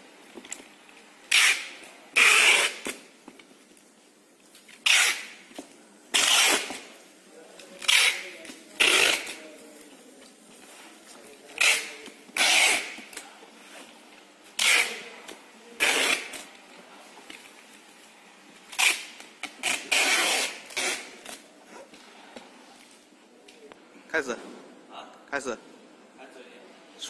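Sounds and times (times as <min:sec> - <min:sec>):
packing tape ripping: 0:01.3 - 0:03.0, 0:04.6 - 0:05.5, 0:06.1 - 0:07.0, 0:07.6 - 0:09.6, 0:11.5 - 0:13.2, 0:14.6 - 0:15.2, 0:15.8 - 0:16.5, 0:18.7 - 0:21.5.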